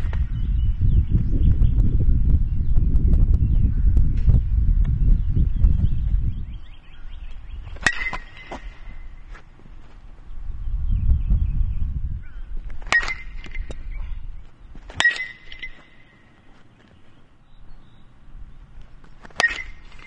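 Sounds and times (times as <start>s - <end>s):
metal bat pinging ball: 7.8s - 8.9s, 12.8s - 13.9s, 14.9s - 16.2s, 19.2s - 20.0s.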